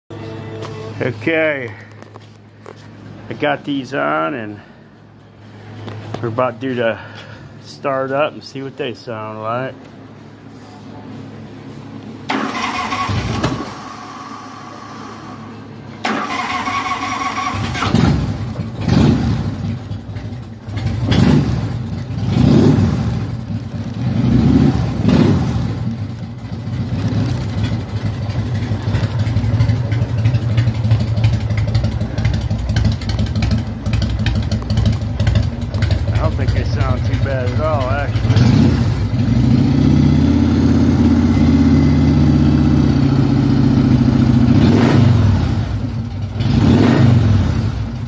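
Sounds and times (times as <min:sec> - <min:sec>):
motorcycle starter cranking: 0:12.3 - 0:13.8, 0:16.0 - 0:22.4, 0:25.9 - 0:38.4
motorcycle engine revving and idling: 0:16.9 - 0:48.0.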